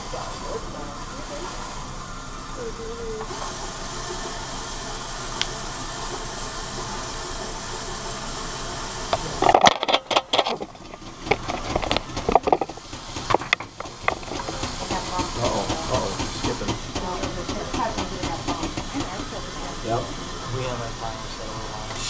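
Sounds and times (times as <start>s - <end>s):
knocks and rubbing on metal frame: 9.2s - 19.3s.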